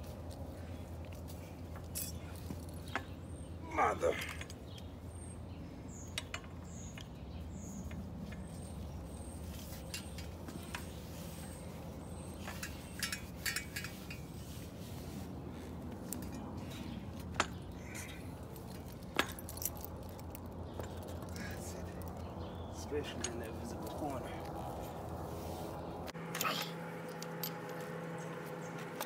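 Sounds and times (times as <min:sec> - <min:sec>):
metal clicks and clinks: 0:12.4 - 0:14.3, 0:17.4 - 0:22.4.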